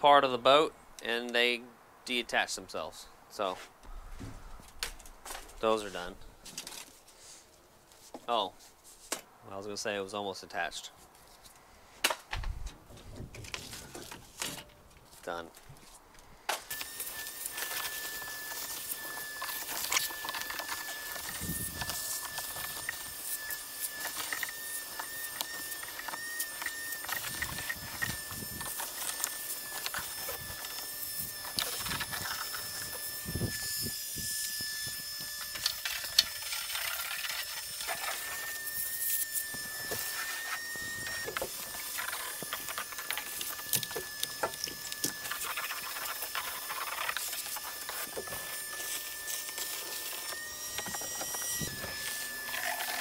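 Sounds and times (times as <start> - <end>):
steady high-pitched whine: 16.5 - 53.0.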